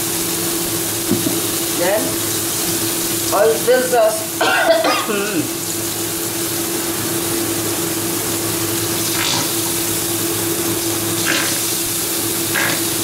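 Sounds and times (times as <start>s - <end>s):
garlic sizzling in oil: 0.0s - 13.0s
squeeze bottle squirting: 9.0s - 9.7s, 11.2s - 11.8s.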